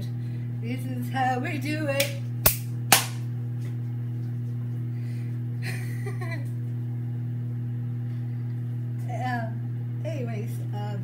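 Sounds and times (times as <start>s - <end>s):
low hum: 0.0s - 11.0s
hand claps: 2.0s - 3.2s.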